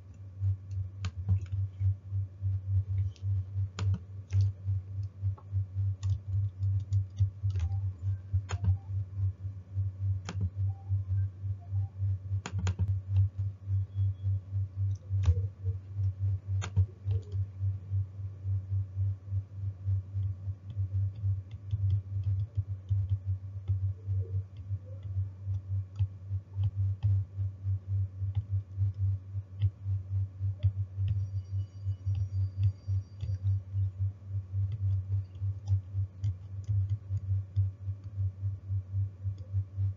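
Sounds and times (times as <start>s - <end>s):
rapid low ticking pulse: 0.0s - 39.9s
keyboard and mouse clicks: 0.1s - 1.9s, 2.9s - 8.9s, 10.2s - 13.5s, 14.9s - 17.5s, 20.2s - 27.2s, 29.6s - 29.8s, 32.0s - 33.9s, 34.6s - 38.2s.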